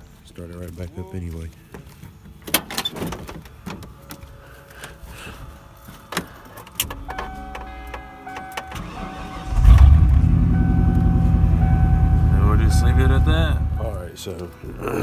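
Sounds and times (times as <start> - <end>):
dashboard warning chime: 7.0 - 14.1
engine running loudly: 9.6 - 14.0.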